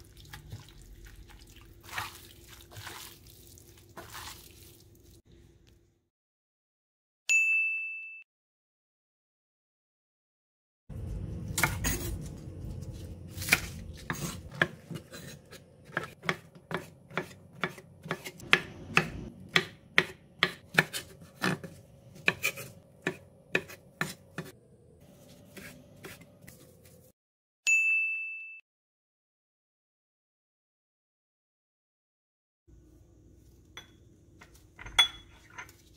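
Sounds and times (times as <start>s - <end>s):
knife chopping on wooden board: 13.4s - 24.5s.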